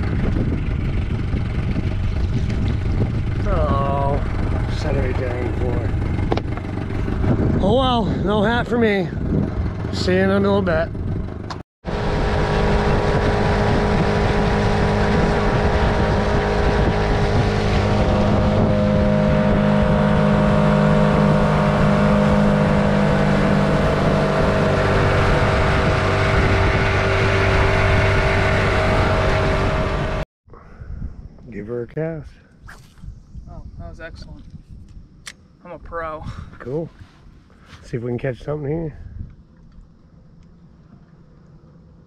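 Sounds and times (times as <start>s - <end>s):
outboard motor running: 0.0s - 30.2s
wind rushing: 0.0s - 37.4s.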